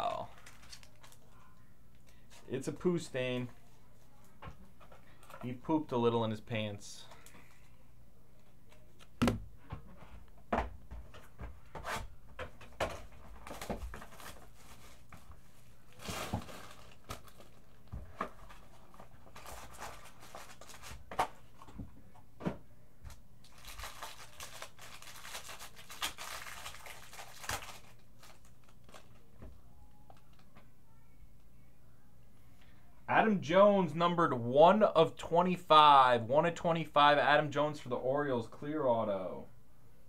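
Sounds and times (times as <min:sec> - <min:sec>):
foil wrapper crinkling and tearing: 0:00.0 - 0:01.4, 0:15.9 - 0:17.8, 0:18.4 - 0:21.0, 0:23.4 - 0:29.2.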